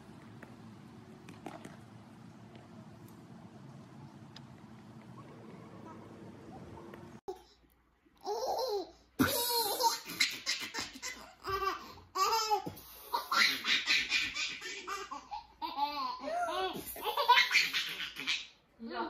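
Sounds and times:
baby laughing: 8.2s - 18.6s.

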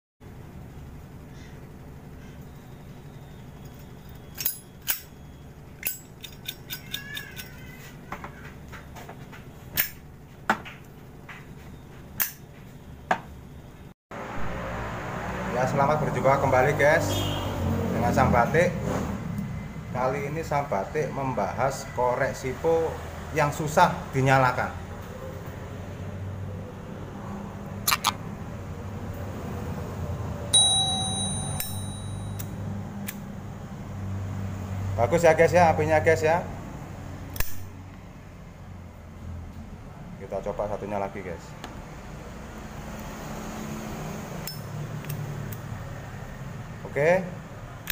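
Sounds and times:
lighter lid metallic ring: 30.6s - 32.5s.

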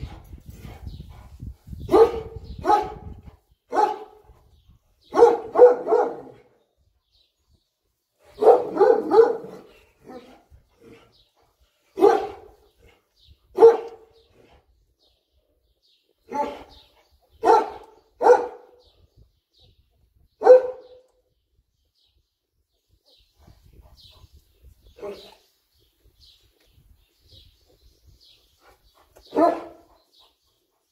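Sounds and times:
dog barking: 1.9s - 3.1s, 3.7s - 4.2s, 5.1s - 6.4s, 8.4s - 10.3s, 12.0s - 12.5s, 13.5s - 14.1s, 16.3s - 16.7s, 17.4s - 18.8s, 20.4s - 21.0s, 29.3s - 29.9s.

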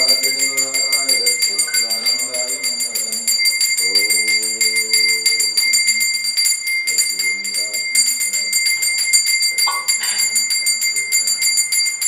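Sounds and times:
voices singing a chant: 0.0s - 6.2s
bell rung rapidly: 0.0s - 12.0s.

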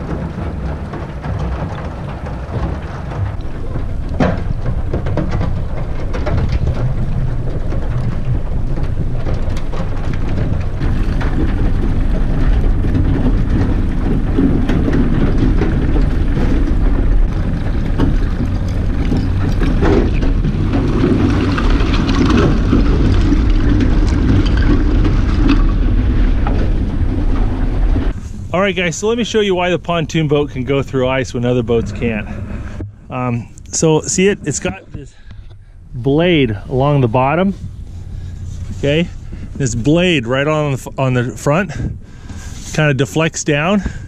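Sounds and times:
ice crackling and crunching: 0.0s - 32.2s
steady low rumble: 0.0s - 44.0s.

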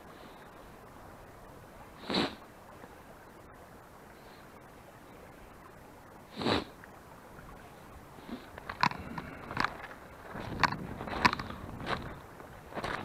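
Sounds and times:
footsteps on pebbles: 9.6s - 13.0s.

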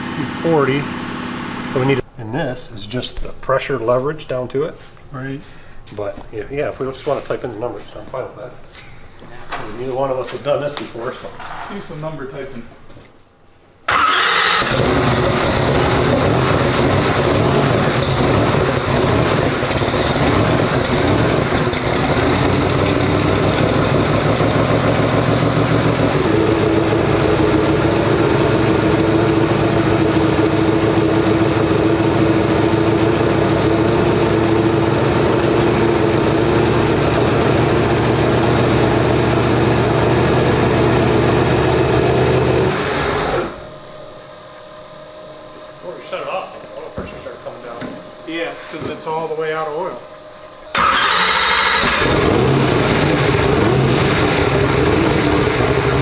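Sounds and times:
race car engine idling: 14.7s - 42.6s, 52.0s - 56.0s.

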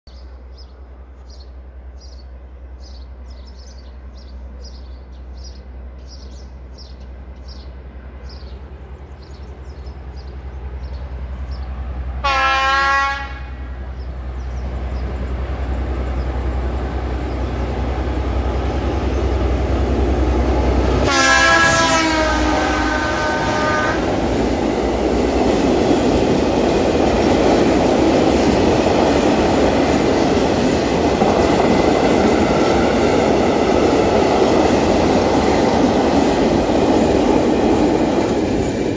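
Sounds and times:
diesel locomotive engine drone: 0.1s - 38.9s
train horn blasts: 12.2s - 13.8s, 20.9s - 24.2s.

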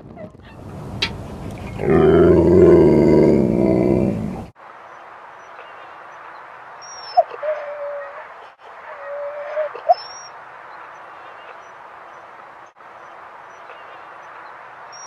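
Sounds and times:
steady low hiss: 0.6s - 7.1s
dog whining: 8.9s - 10.3s.

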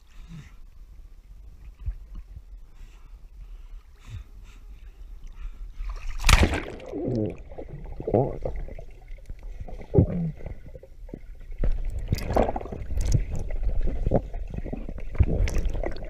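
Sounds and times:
pool water splashing: 6.0s - 9.2s
underwater gurgling and bubbling: 6.5s - 16.0s.

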